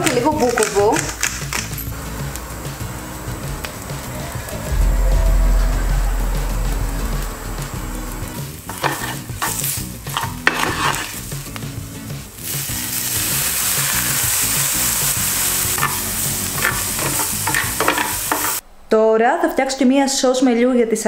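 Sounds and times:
mushrooms sizzling on grill pan: 8.7s - 18.6s.

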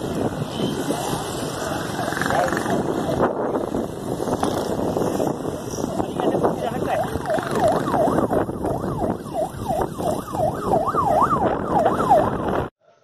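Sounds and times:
wind: 0.0s - 13.0s
siren yelping: 1.9s - 3.6s, 5.6s - 12.7s.

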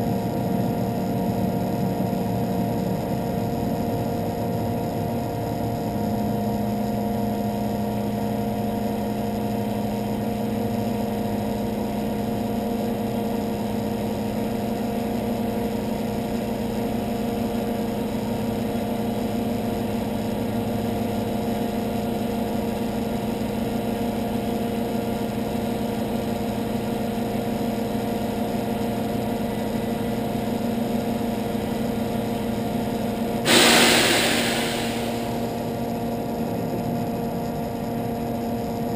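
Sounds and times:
loud air hiss: 33.5s - 35.9s.

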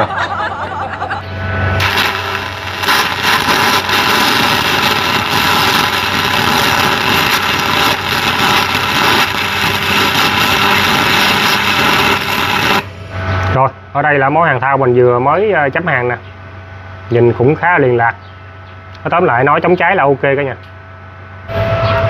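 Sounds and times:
welding arc crackling hiss: 1.5s - 12.9s.

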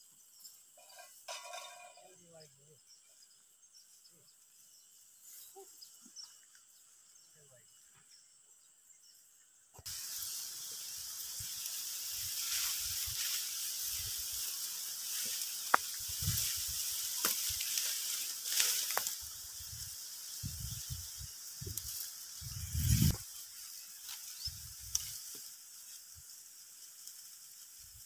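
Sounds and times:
dry stalks and leaves rustling: 9.8s - 28.0s
wind buffets on microphone: 16.0s - 16.8s, 19.6s - 23.2s.

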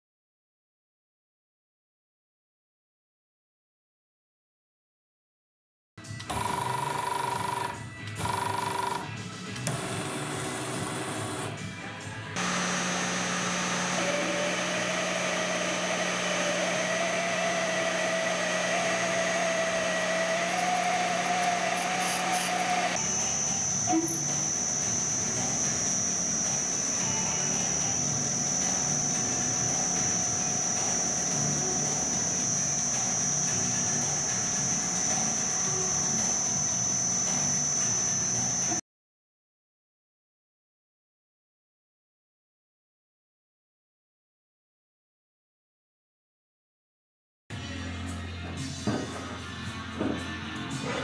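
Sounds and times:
milling machine feed whine: 6.3s - 38.8s
metal lathe turning: 12.4s - 38.8s.

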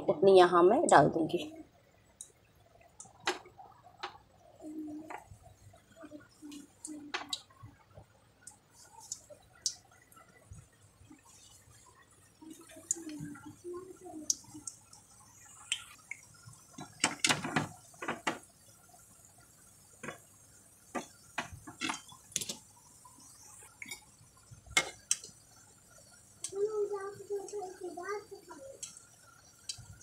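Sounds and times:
dough frying in oil: 0.0s - 30.0s
oil pops and crackles: 8.4s - 10.0s, 15.6s - 18.5s, 20.0s - 20.3s, 20.9s - 22.7s.

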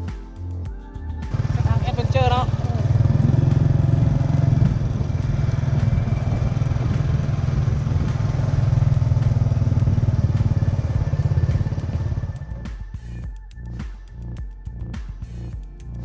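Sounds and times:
small motorcycle engine running: 1.3s - 12.6s
road noise: 1.3s - 13.2s.

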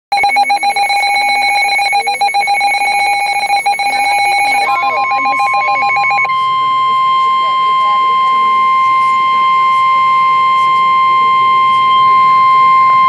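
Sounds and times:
rapid electronic alert trill: 0.1s - 13.0s
steady alert tone: 0.1s - 13.0s.

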